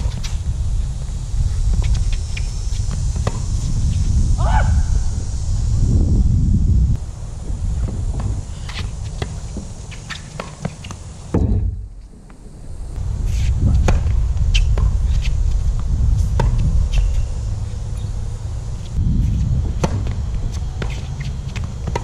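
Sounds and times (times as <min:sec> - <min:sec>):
footsteps on hard court: 0:00.0 - 0:03.7, 0:19.2 - 0:22.0
wind rumbling on microphone: 0:00.0 - 0:10.3, 0:11.2 - 0:22.0.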